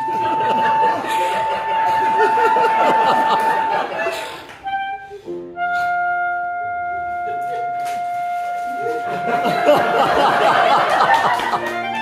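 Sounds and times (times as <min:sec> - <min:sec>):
audience laughing: 0:00.0 - 0:04.6, 0:08.8 - 0:12.0
clarinet sustained note: 0:00.0 - 0:09.6
piano chords: 0:00.0 - 0:12.0.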